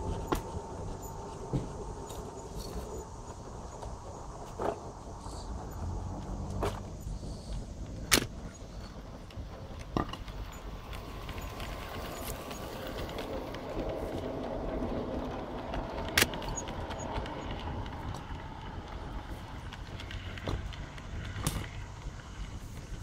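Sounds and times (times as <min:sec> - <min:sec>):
model train wheels clattering: 0:00.0 - 0:23.0.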